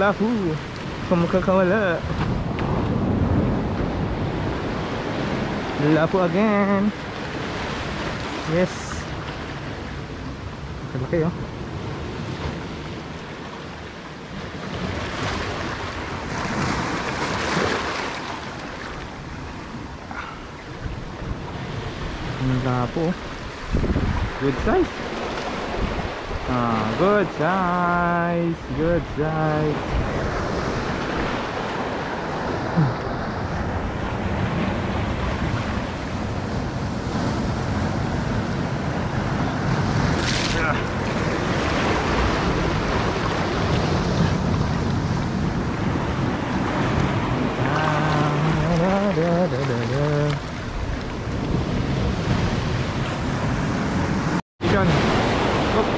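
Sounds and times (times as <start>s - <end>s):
waves washing over rocks: 0.0s - 55.9s
wind buffeting microphone: 1.8s - 6.0s, 14.6s - 27.0s, 28.2s - 55.9s.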